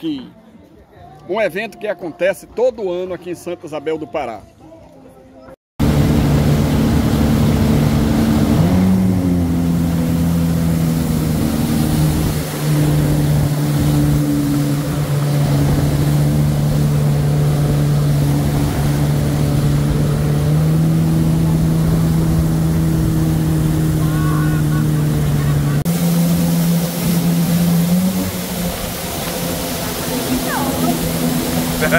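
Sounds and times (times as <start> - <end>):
jet ski engine running: 5.8 - 31.9
water hissing: 25.8 - 31.9.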